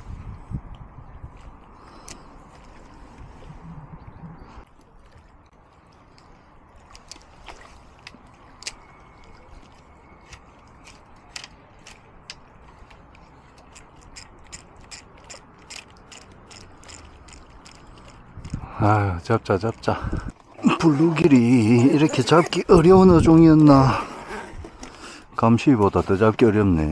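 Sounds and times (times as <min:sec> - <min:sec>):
fishing reel gears clicking: 0:13.6 - 0:18.6.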